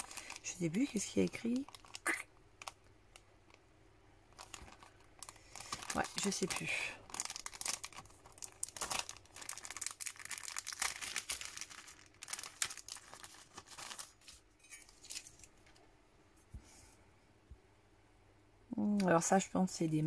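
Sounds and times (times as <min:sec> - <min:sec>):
plastic packaging crinkling: 0:00.0 - 0:03.6, 0:04.3 - 0:15.8.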